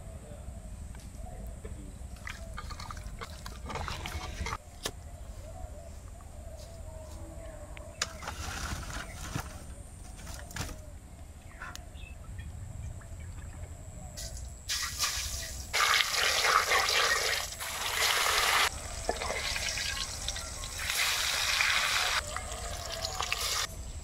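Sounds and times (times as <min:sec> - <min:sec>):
oil trickling into pan: 0:14.7 - 0:21.8.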